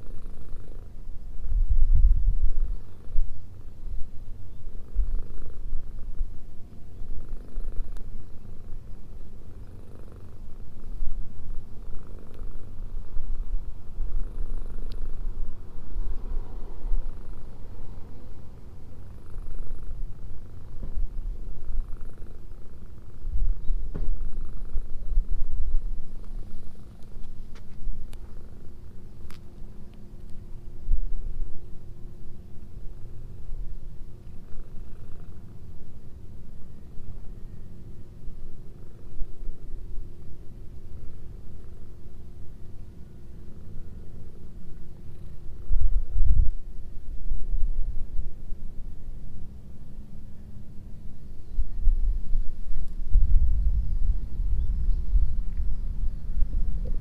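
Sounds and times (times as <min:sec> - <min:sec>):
cat purring: 0:00.0 - 0:29.4, 0:33.0 - 0:36.1.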